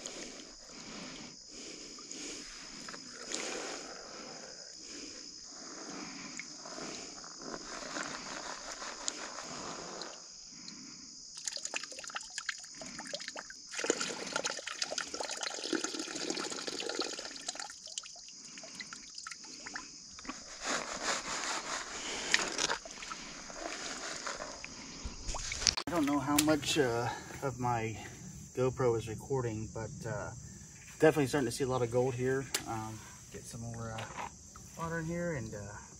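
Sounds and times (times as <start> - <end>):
gravel rattling in a pan: 20.2 - 24.7
water sloshing in a plastic pan: 22.6 - 26.6.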